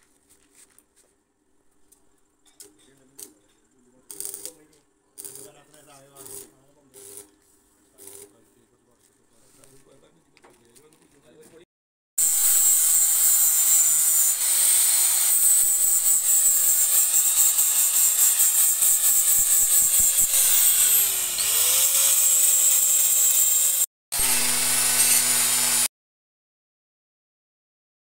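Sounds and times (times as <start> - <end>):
angle grinder grinding metal: 5.2 - 7.3, 8.0 - 8.4, 12.2 - 25.9.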